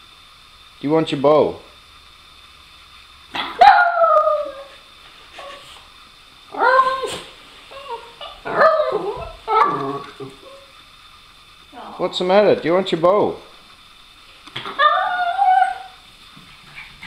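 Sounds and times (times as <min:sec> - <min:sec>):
small dog howling: 0:03.4 - 0:04.8, 0:06.5 - 0:10.7, 0:14.6 - 0:16.0
dog whining: 0:03.4 - 0:05.8, 0:06.5 - 0:10.8, 0:14.6 - 0:16.0.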